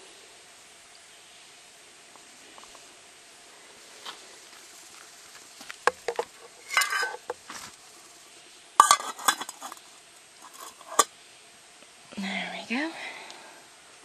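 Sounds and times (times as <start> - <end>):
metal pot and lid clattering: 5.9 - 7.4, 8.8 - 9.8, 10.4 - 11.1.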